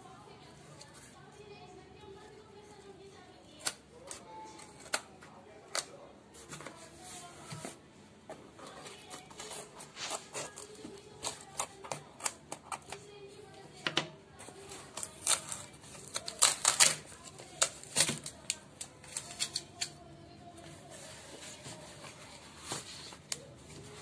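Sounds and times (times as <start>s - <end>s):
scissors snipping packing tape: 9.4s - 13.0s, 14.9s - 20.0s
cardboard clicking and crackling: 14.4s - 19.9s.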